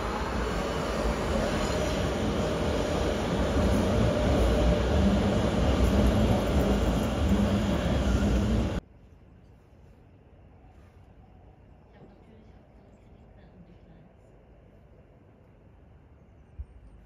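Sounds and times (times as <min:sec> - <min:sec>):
metro train rumbling on track: 0:00.0 - 0:08.8.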